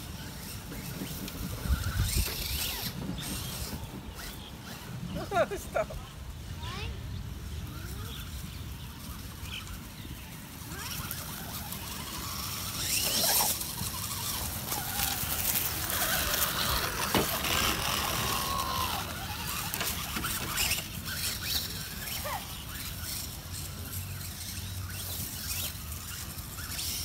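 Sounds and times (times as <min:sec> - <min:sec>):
tyres crackling through leaves: 0:00.0 - 0:27.0
electric motor whining: 0:09.4 - 0:27.0.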